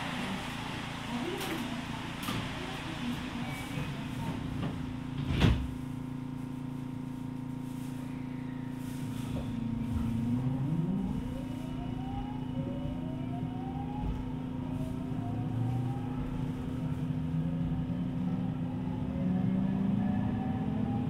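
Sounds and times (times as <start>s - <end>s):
train running gear rumble: 0.0s - 6.0s, 9.0s - 18.7s.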